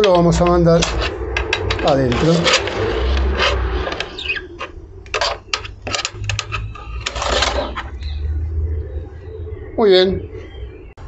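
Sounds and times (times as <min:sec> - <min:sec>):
metal scraping on oven floor: 0:00.0 - 0:07.9.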